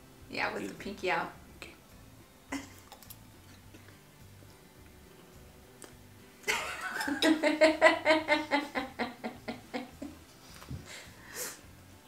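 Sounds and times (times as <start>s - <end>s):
person laughing: 6.5s - 10.2s.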